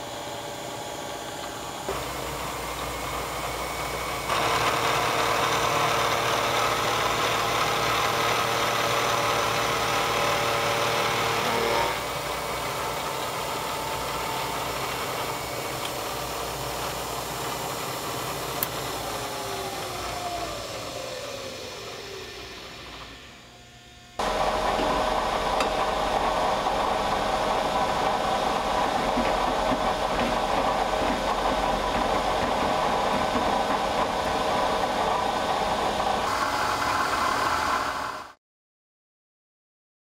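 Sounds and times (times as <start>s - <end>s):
milling machine spinning down: 0.0s - 23.6s, 24.2s - 38.4s
face mill cutting metal whine: 0.0s - 38.3s.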